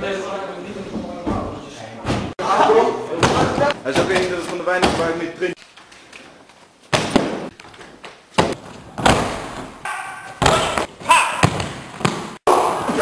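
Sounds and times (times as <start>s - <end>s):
bodies thudding on gym mats: 8.3s - 9.8s.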